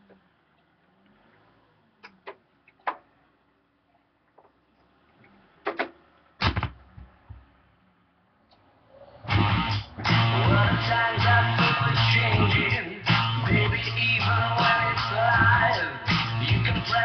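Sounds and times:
stylus thump on record: 5.7 - 7.5
guitar music from record: 9.3 - 17.0.

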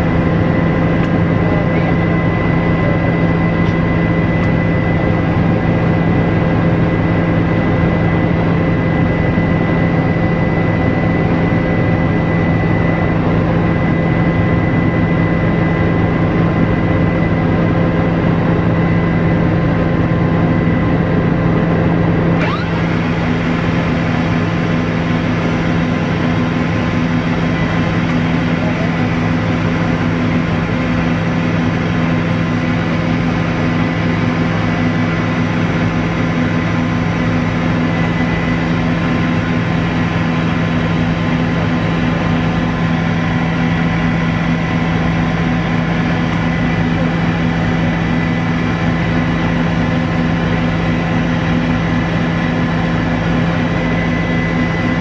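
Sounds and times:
constant whining tones: 0.0 - 55.0
helicopter turbine and rotor drone: 0.0 - 55.0.

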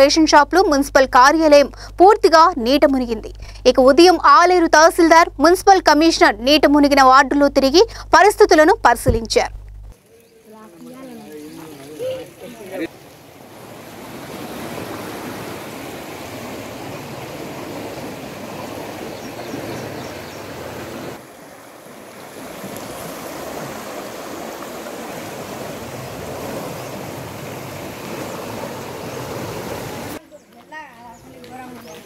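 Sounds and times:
floodwater rushing: 10.0 - 30.2.

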